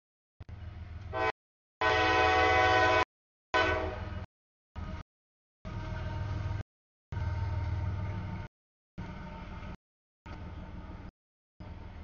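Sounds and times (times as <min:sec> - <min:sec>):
freight train rumble: 0:00.4 - 0:05.0, 0:05.6 - 0:12.0
locomotive air horn blasts: 0:01.1 - 0:04.2.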